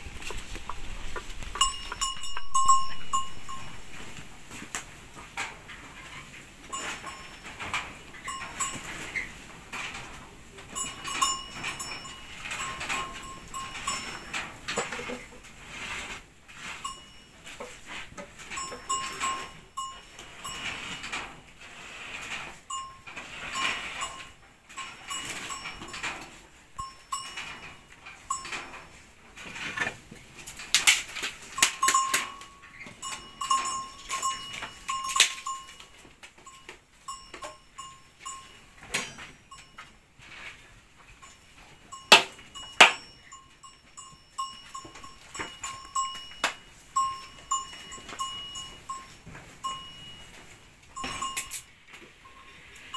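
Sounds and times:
firewood knocking and clattering: 0.0s - 6.0s, 41.9s - 43.2s.

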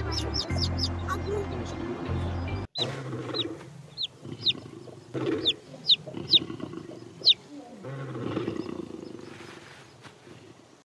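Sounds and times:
lions growling: 2.8s - 9.5s.

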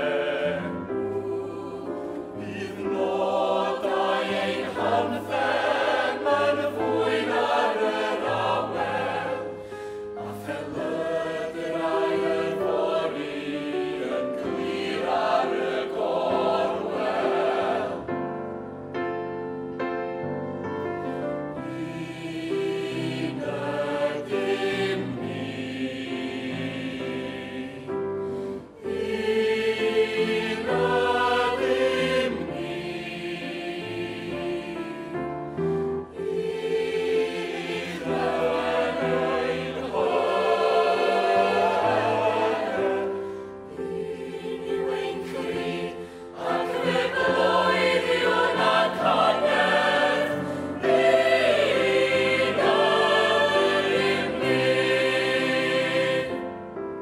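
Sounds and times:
mixed choir singing: 0.0s - 18.3s, 21.5s - 56.8s.

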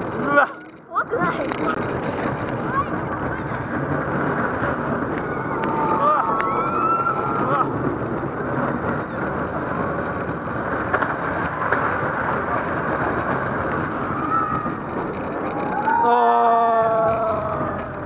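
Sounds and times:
roller coaster wheel rumble: 0.0s - 18.0s
held pitched wail: 5.3s - 7.7s, 15.6s - 17.9s.

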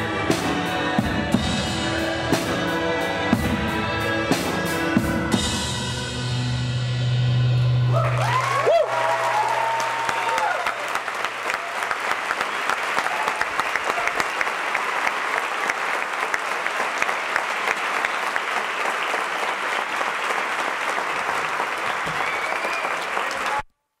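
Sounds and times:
audience applauding: 7.9s - 23.7s.

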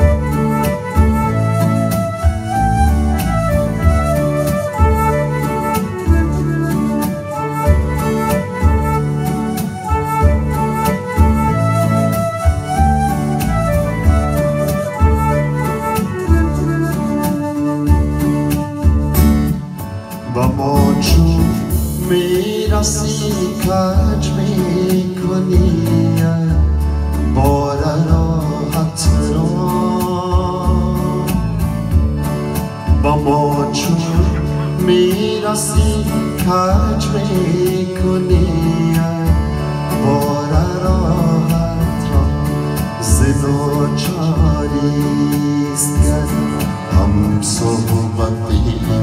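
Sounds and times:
wavering keyboard melody: 0.0s - 49.0s
pulsing bass beat: 30.4s - 37.4s, 45.9s - 49.0s.

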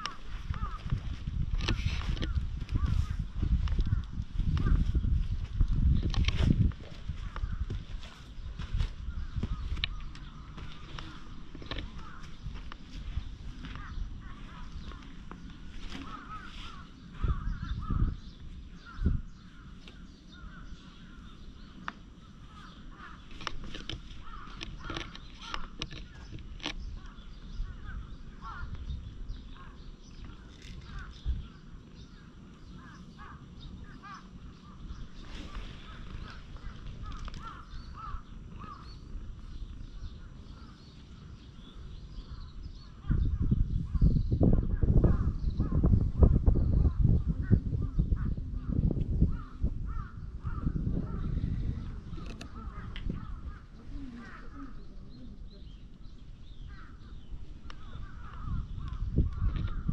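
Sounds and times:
birds calling: 0.0s - 59.9s.

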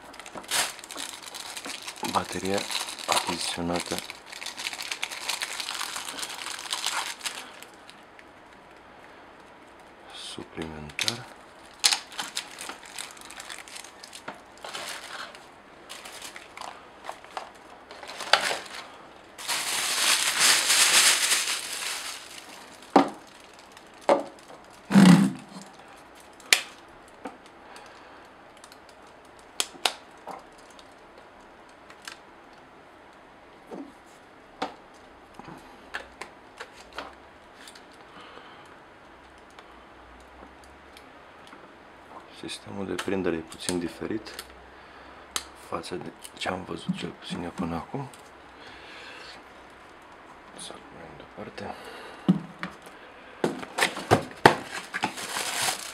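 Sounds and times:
plastic wrapping crinkling: 0.0s - 8.3s, 10.8s - 26.8s, 53.5s - 55.9s.

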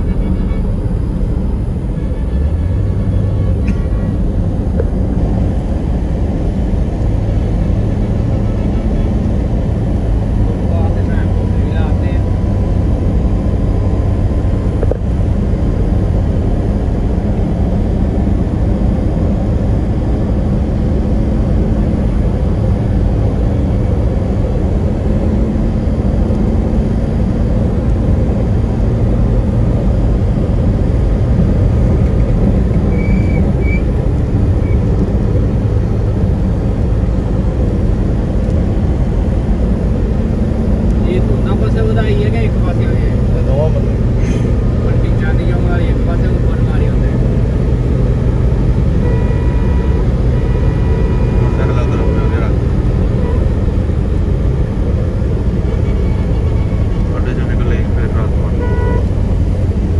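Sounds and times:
tyres on the road: 0.0s - 59.9s
vehicle engine drone: 0.0s - 59.9s.

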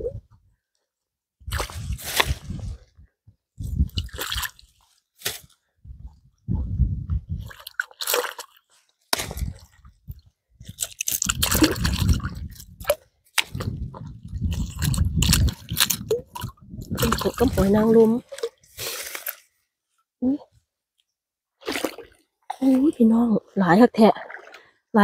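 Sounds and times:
low rumble on microphone: 1.4s - 4.0s, 5.8s - 7.5s, 11.3s - 18.2s
water squishing and dripping: 3.8s - 5.6s, 7.4s - 19.5s.

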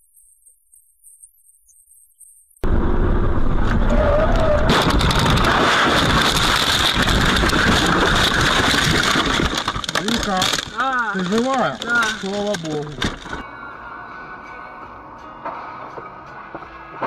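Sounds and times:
car crash rumbling and scraping: 2.6s - 13.4s.

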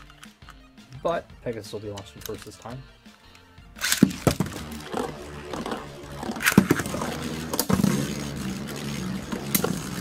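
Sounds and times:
spinning tops clacking on landing: 3.8s - 10.0s
spinning tops clashing: 3.8s - 10.0s
tops scraping on plastic floor: 4.2s - 10.0s.

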